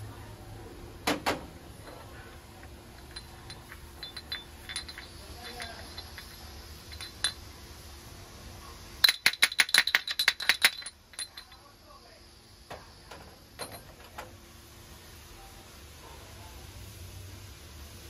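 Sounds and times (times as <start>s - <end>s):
small metal items clinking: 1.8s - 7.5s, 9.0s - 11.7s.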